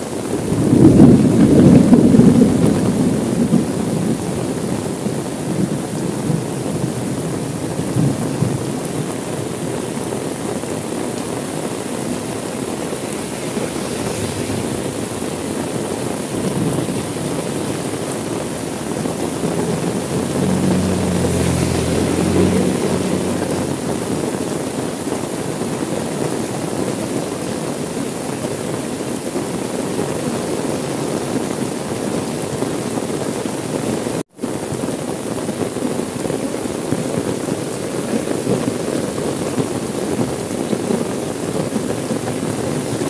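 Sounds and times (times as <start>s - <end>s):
heavy rain: 0.0s - 43.0s
low rumble: 12.2s - 17.3s.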